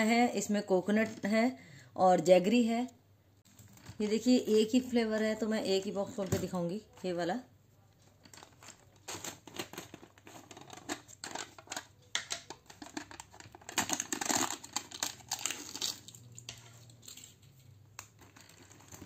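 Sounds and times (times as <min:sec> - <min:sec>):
jar liner crackling and tearing: 0:08.3 - 0:19.0.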